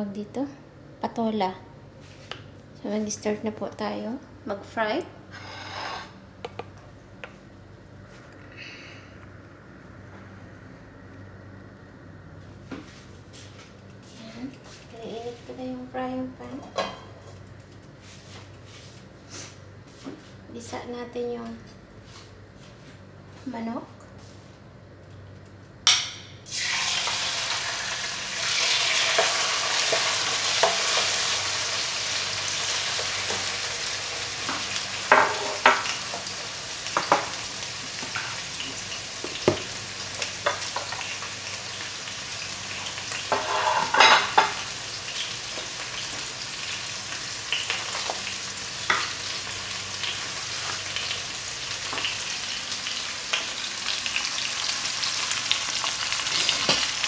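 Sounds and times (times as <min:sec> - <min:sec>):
wooden spoon scraping a wok: 0:05.3 - 0:06.2, 0:43.3 - 0:44.0
chicken sizzling in a wok: 0:26.5 - 0:57.0.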